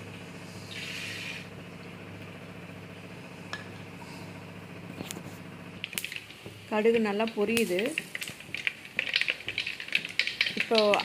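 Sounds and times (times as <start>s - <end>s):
seeds popping: 5.8s - 11.0s
seeds sizzling in hot oil: 5.9s - 11.0s.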